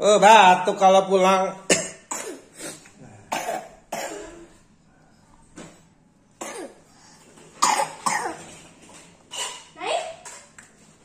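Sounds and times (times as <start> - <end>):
young child coughing: 1.7 - 4.6, 6.4 - 6.8, 7.6 - 8.6, 9.3 - 9.8.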